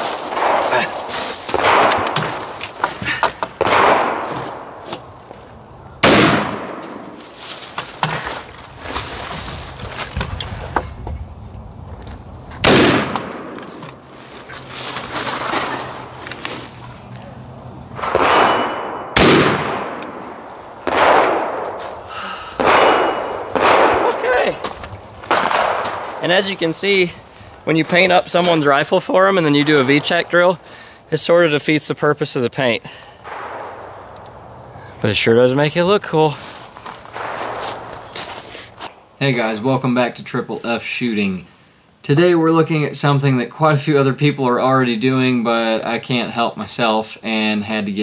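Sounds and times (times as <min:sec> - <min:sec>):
rifle shots with echo: 0:00.2 - 0:02.5, 0:03.6 - 0:04.8, 0:06.0 - 0:07.2, 0:12.6 - 0:13.6, 0:18.0 - 0:21.8, 0:22.6 - 0:24.6, 0:25.3 - 0:26.3, 0:33.2 - 0:34.1, 0:37.1 - 0:37.9.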